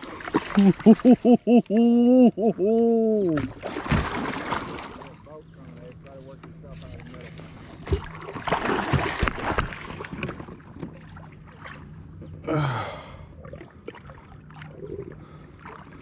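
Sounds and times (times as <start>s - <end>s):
water sounds: 0.0s - 16.0s
person grunting: 0.6s - 3.4s, 12.4s - 13.2s.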